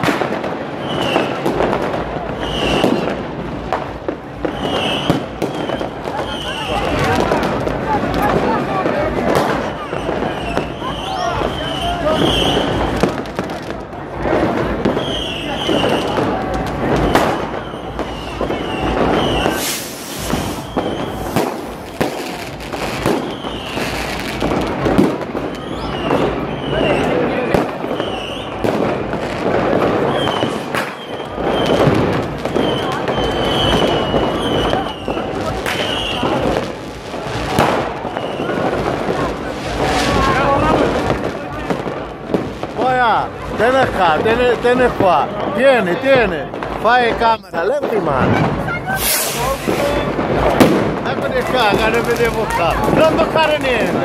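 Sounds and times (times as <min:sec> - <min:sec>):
high firework whistle: 0:00.0 - 0:03.3, 0:04.4 - 0:07.6, 0:09.2 - 0:13.4, 0:14.8 - 0:41.4, 0:46.6 - 0:53.6
firecrackers banging and crackling: 0:00.0 - 0:54.0
fireworks hissing: 0:00.0 - 0:54.0.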